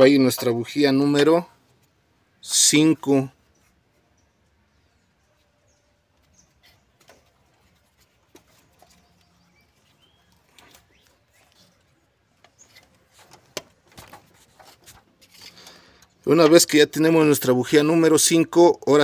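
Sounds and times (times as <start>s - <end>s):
faint bird chirps: 3.2s - 13.3s.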